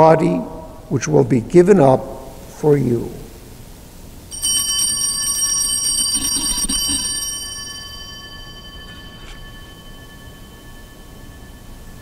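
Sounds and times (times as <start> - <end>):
altar bells ringing: 4.3 - 12.0.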